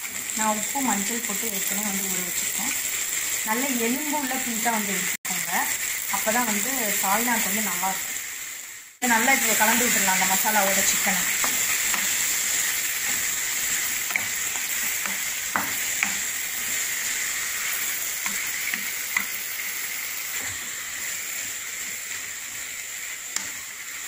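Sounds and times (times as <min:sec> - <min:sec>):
chicken sizzling in hot oil: 0:00.0 - 0:24.0.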